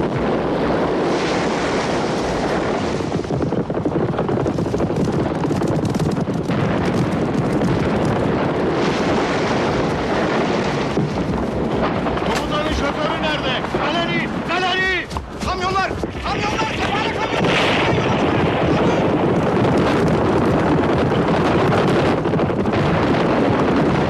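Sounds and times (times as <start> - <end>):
explosions: 0.0 - 24.0
galloping horses: 3.7 - 8.7, 9.8 - 17.3, 19.1 - 23.7.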